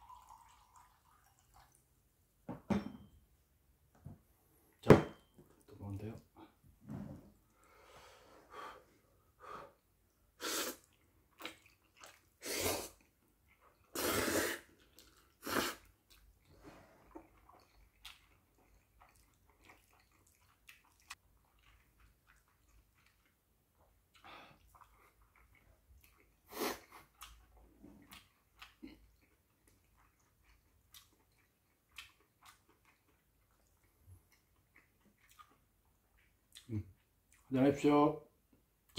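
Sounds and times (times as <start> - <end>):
slurping noodles: 10.4 - 13.1, 13.8 - 17.7
chewing: 10.8 - 14.0, 14.8 - 37.5.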